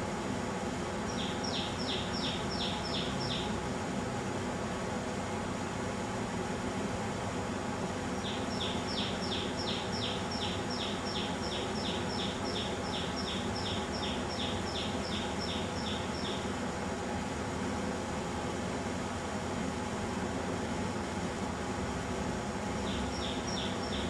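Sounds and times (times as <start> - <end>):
steady background hum: 0.0 - 24.0
bird singing rapid notes: 1.1 - 3.6, 8.2 - 16.5, 22.8 - 24.0.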